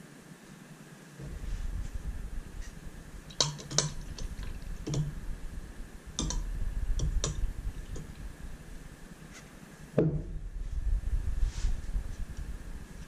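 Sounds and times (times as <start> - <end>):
low steady rumble: 1.2 - 13.0
glass cups clicking together: 3.3 - 5.1, 6.2 - 6.4.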